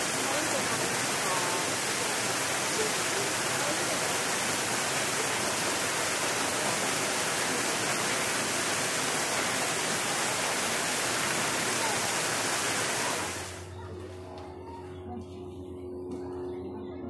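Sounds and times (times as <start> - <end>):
waterfall rushing: 0.0 - 13.6.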